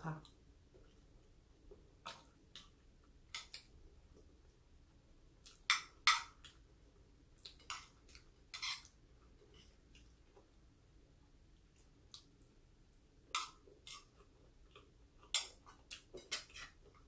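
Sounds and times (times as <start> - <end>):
cutlery clinking on a plate: 8.6 - 8.9, 15.3 - 16.8.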